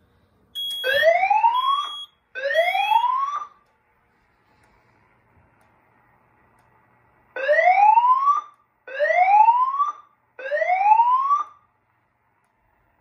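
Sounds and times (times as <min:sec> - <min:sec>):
fire alarm whoop tone: 0:00.6 - 0:03.6.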